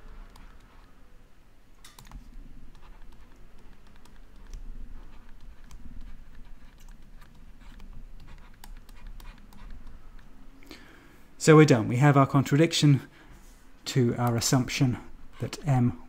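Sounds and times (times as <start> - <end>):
stylus tapping and scratching screen: 0.0 - 1.0, 1.8 - 10.5, 13.4 - 16.0
low room hum: 0.0 - 16.0.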